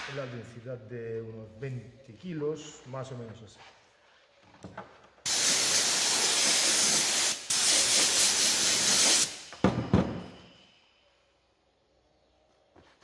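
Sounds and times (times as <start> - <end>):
spray gun hissing: 5.3 - 9.5.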